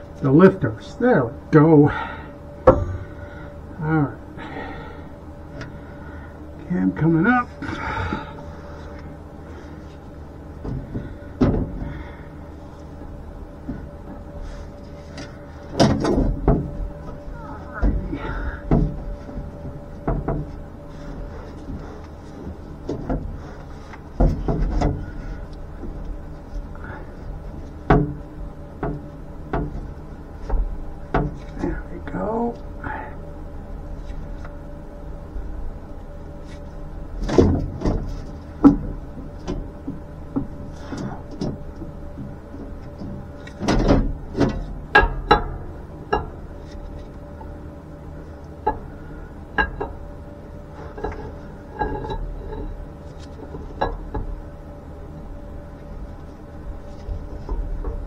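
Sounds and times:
faint steady hum: 0.0 - 58.0
metal knocks and clunks: 2.6 - 3.0, 10.6 - 12.0, 15.7 - 16.9, 17.7 - 20.6, 22.8 - 25.2, 42.2 - 46.4.

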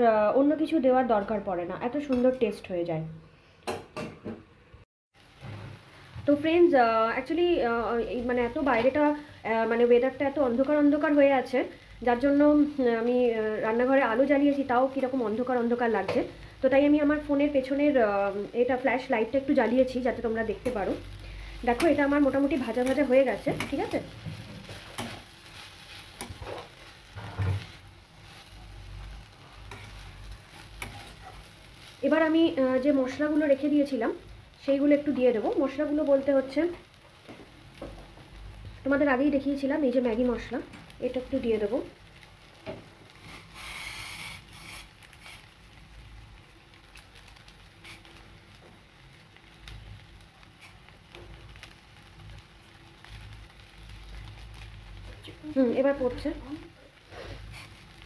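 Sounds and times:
food sizzling in a pan: 5.2 - 58.0
pan stirring knocks and scrapes: 26.2 - 27.8.

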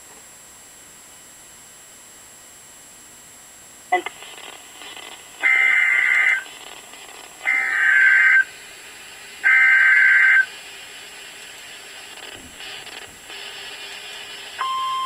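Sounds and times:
warbling digital data tones: 4.0 - 8.6, 9.4 - 10.5.

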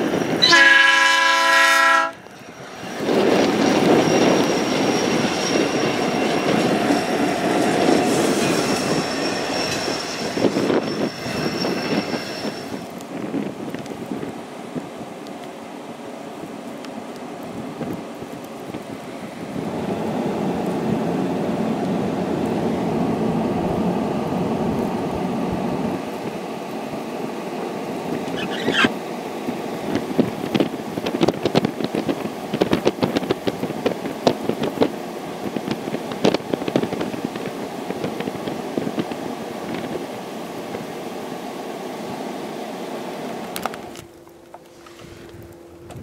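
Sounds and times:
wind buffeting microphone: 0.0 - 0.5, 2.2 - 15.2, 17.3 - 27.2, 27.8 - 41.0, 44.9 - 46.0.

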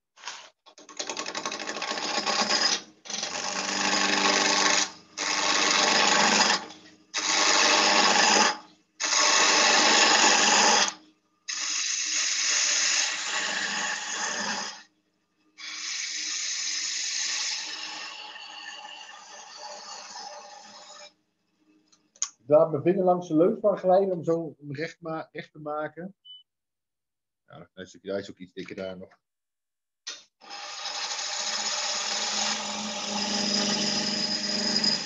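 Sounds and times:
lathe gouge cutting wood: 1.2 - 14.8, 15.6 - 21.1, 30.4 - 35.0.

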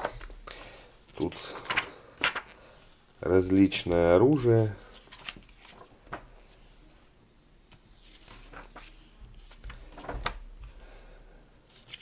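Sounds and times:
book pages turning: 1.1 - 2.9, 3.6 - 6.7, 7.7 - 10.8, 11.6 - 12.0.

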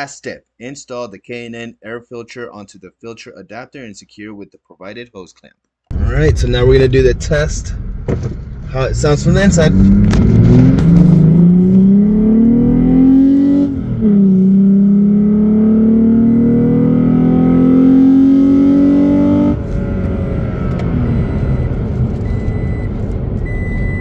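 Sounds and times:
truck engine accelerating: 5.9 - 24.0.

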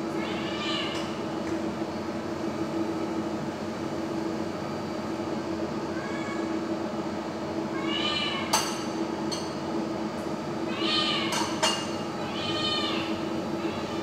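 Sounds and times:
steady background hum: 0.0 - 14.0
cat meowing: 0.2 - 1.0, 5.9 - 6.5, 7.7 - 8.6, 10.7 - 11.4, 12.2 - 14.0.

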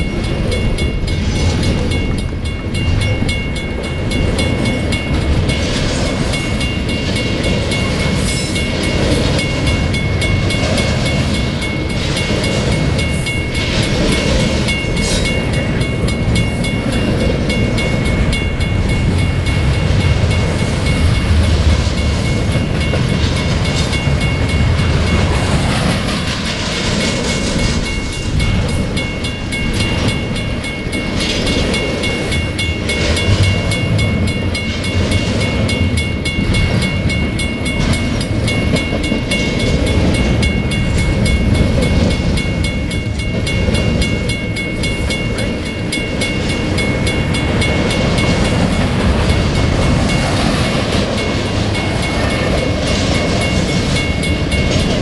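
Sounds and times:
train low rumble: 0.0 - 55.0.

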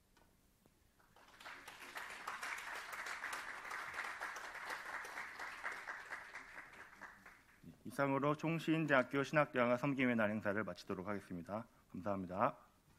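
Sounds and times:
audience applause: 1.1 - 7.6.

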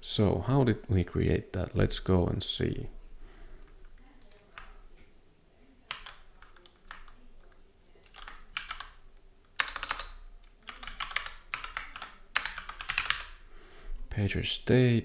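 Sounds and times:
typing on computer keyboard: 3.6 - 4.8, 5.9 - 13.4.

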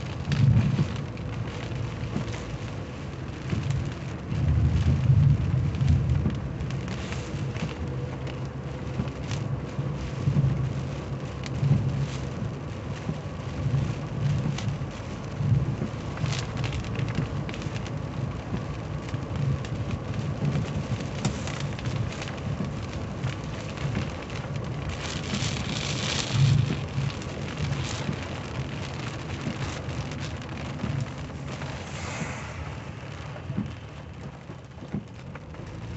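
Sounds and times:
heavy rain drumming on car: 0.0 - 35.9
low uneven rumble: 0.0 - 35.9
brief loud hiss: 31.6 - 34.2.

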